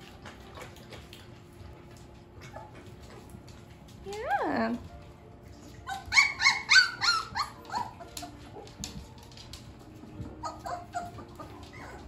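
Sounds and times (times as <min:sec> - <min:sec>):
dog whimpering: 0:02.4 - 0:02.9, 0:05.8 - 0:08.6, 0:10.3 - 0:12.0.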